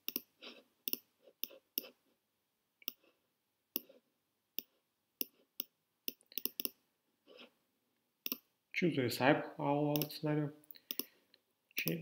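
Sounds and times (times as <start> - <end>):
computer mouse clicks: 0.0 - 2.0, 4.6 - 6.8, 8.2 - 8.5, 10.0 - 11.1, 11.8 - 12.0.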